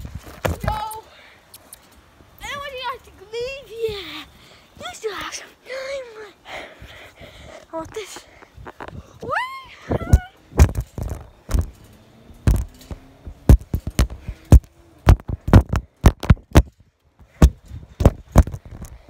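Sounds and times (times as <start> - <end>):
phone handling thumps and knocks: 13.5 - 16.7.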